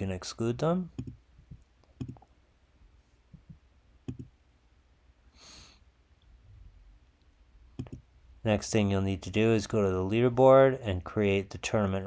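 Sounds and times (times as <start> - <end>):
computer mouse clicks: 1.0 - 2.3, 4.1 - 4.3, 7.8 - 8.0.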